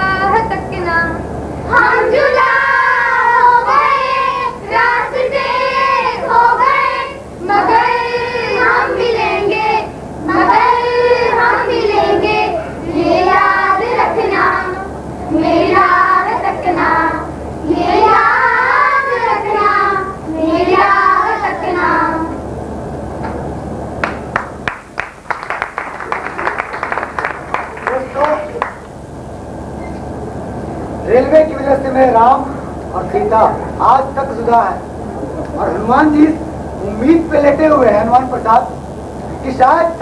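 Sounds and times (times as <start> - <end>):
low electrical hum: 0.0 - 40.0
children singing: 1.7 - 22.4.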